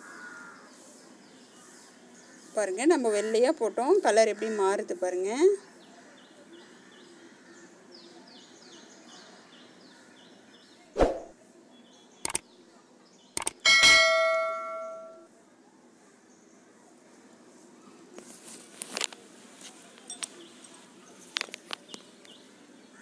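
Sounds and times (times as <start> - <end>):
light clicks: 12.2 - 12.4
ringing metallic clang: 13.7 - 15.3.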